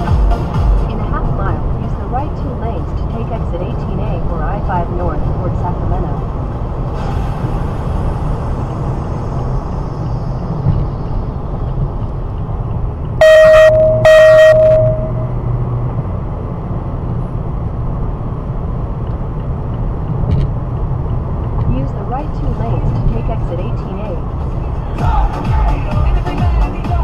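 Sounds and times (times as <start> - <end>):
car road and engine rumble: 0.0 - 27.0
car horn blasts: 13.2 - 15.4.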